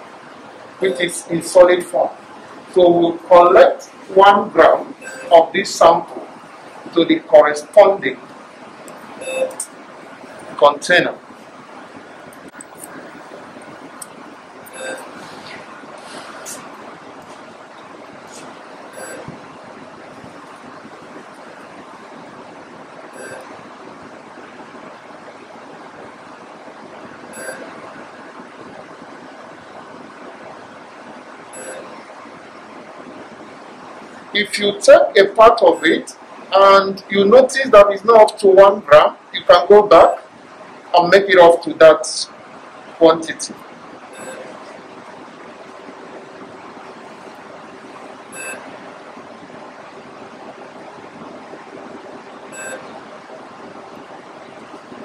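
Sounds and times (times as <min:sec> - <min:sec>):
faint hum: 0:00.0 - 0:55.0
room noise hiss: 0:00.0 - 0:55.0
high-pitched blips: 0:05.0 - 0:05.5, 0:09.2 - 0:09.7, 0:14.7 - 0:15.1, 0:18.9 - 0:19.4, 0:23.2 - 0:23.6, 0:27.3 - 0:27.8, 0:31.6 - 0:32.0, 0:44.1 - 0:44.6, 0:48.3 - 0:48.8, 0:52.5 - 0:53.0.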